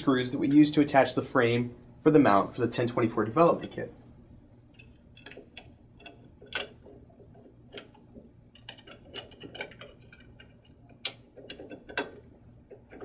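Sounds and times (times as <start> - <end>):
allen wrench clicking on screws: 4.8 - 6.8, 8.5 - 12.2.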